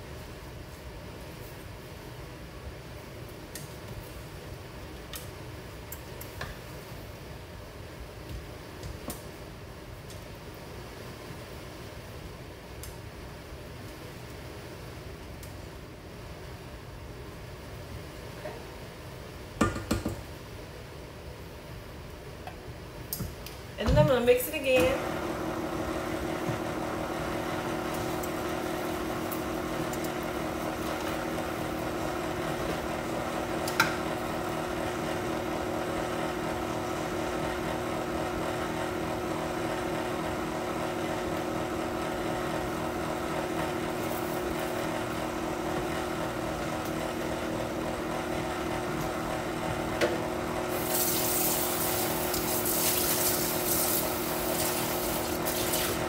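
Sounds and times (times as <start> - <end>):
stand mixer motor humming: 25.0 - 52.6, 53.4 - 56.0.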